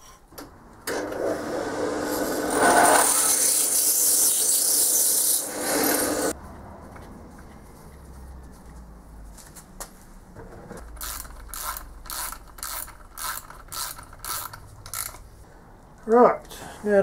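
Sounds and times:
ratchet wrench clicking: 10.8s - 15.2s.

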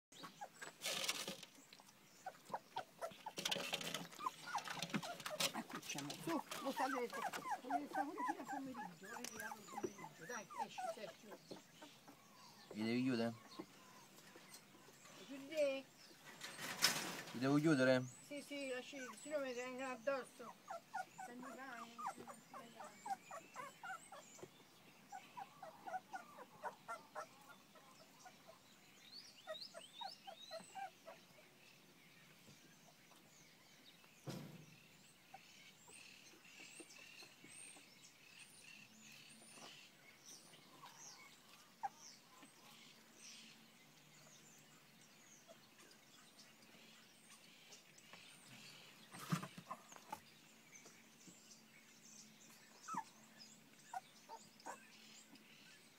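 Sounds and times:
puppies squeaking and whimpering: 2.2s - 12.6s, 20.4s - 24.4s, 25.1s - 28.6s, 29.3s - 31.2s, 52.8s - 55.0s.

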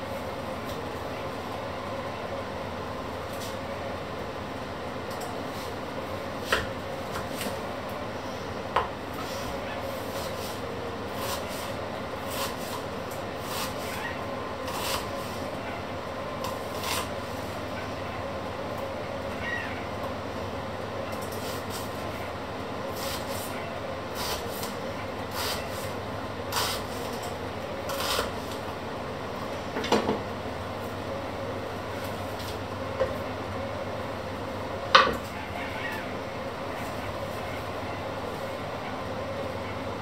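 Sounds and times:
knife slicing onion on board: 6.4s - 7.6s, 9.2s - 14.0s, 14.7s - 15.5s, 16.4s - 17.1s, 22.9s - 23.5s, 24.1s - 27.2s, 27.9s - 28.6s.

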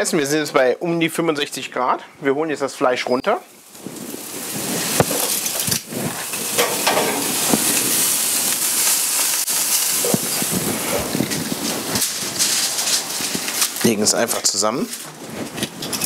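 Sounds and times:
meat sizzling on grill: 3.4s - 16.0s.

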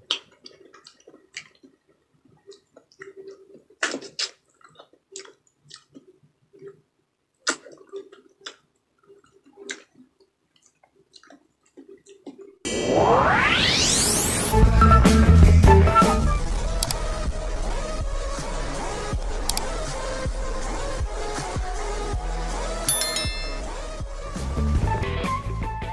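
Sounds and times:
wet smacks and chewing: 0.0s - 12.6s.

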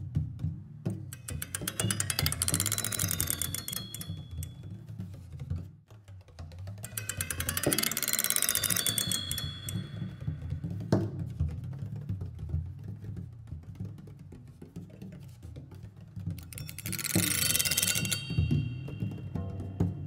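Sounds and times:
high held tones: 1.2s - 4.6s, 6.9s - 10.8s, 16.6s - 20.0s
rapid ticking: 1.2s - 4.8s, 6.7s - 11.0s, 16.4s - 19.7s.

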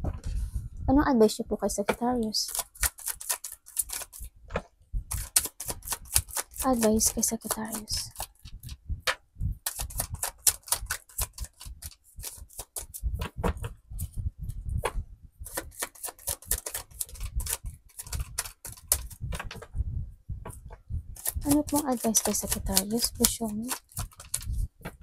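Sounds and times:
cards being shuffled: 2.4s - 4.3s, 5.1s - 8.8s, 9.6s - 13.7s, 15.5s - 19.7s, 21.2s - 25.0s.

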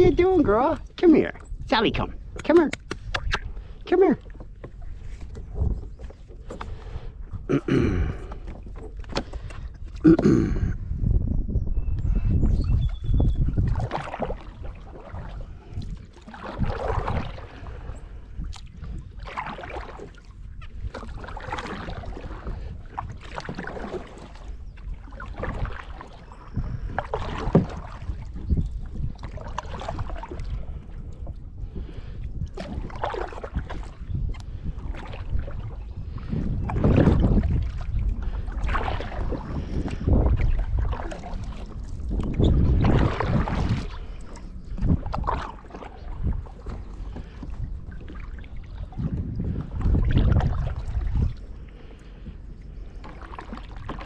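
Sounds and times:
wind rumble on microphone: 0.0s - 54.0s
kayak paddle splashing in water: 13.4s - 54.0s.

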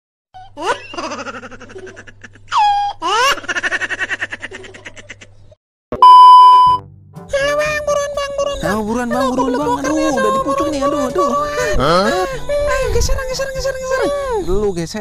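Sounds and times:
electronic beep: 6.0s - 6.8s
music: 6.6s - 14.5s.

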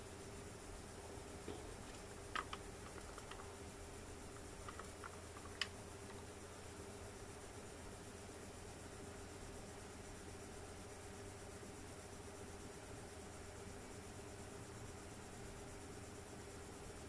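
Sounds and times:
tape deck fast-winding hum: 0.0s - 11.4s.

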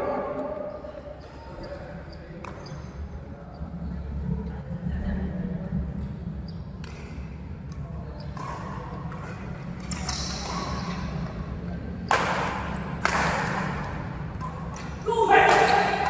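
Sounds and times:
rackets striking shuttlecock: 12.0s - 16.0s.

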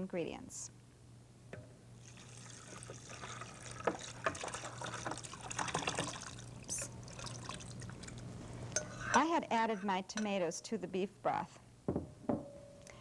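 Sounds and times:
thick liquid pouring and splashing: 2.0s - 8.2s.

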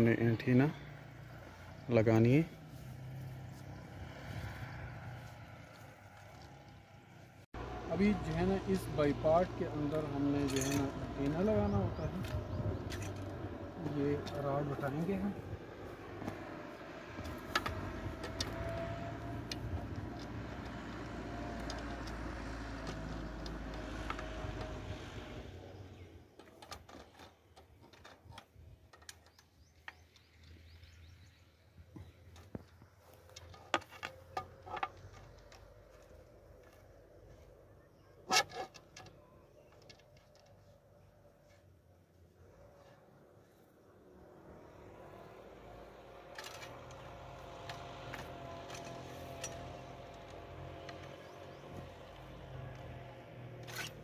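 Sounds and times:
low engine hum: 0.0s - 26.4s, 29.6s - 38.2s, 38.8s - 54.0s
metal clamp clicks and knocks: 10.4s - 11.4s, 12.2s - 13.4s, 46.2s - 52.0s.

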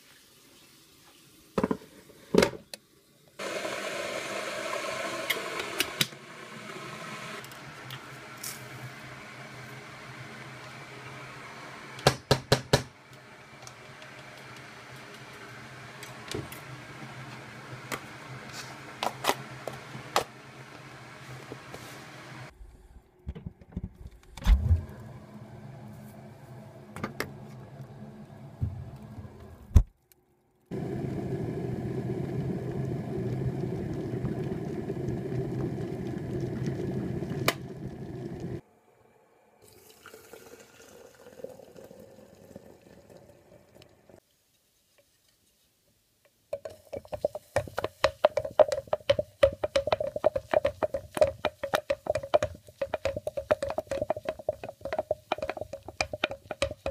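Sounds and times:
water running into a container: 30.7s - 38.6s, 39.6s - 44.2s.

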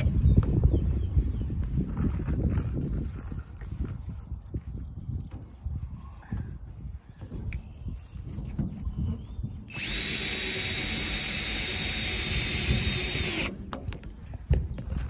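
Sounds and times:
cordless drill running under load: 9.7s - 13.6s.

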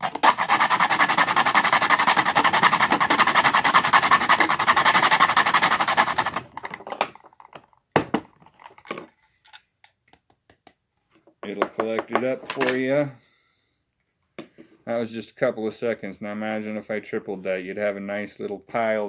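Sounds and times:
rapid scraping on grater: 0.0s - 6.5s.

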